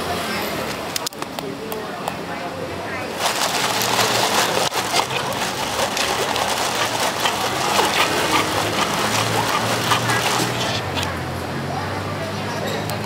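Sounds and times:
soda fizzing over ice: 3.2 - 11.0.

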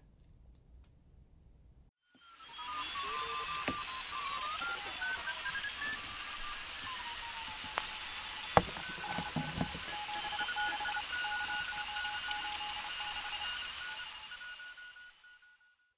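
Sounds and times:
overlapping electronic beeping tones: 2.3 - 14.5.

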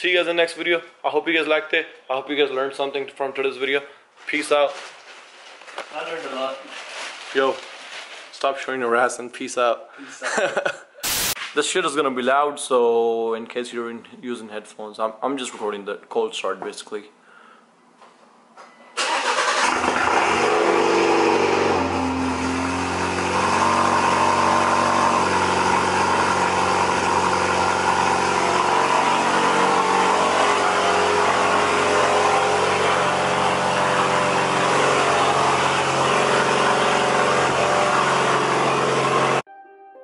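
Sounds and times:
car engine cold start: 19.0 - 39.4.

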